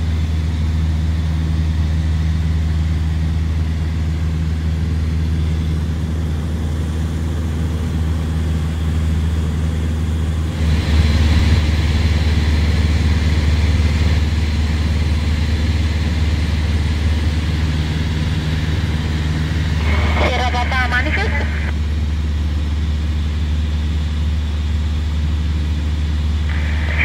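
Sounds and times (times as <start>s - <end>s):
light aircraft engine droning: 0.0s - 27.0s
rushing air: 26.4s - 27.0s.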